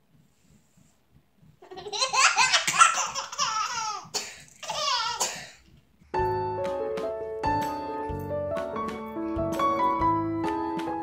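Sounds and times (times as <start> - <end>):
baby laughing: 1.6 - 5.4.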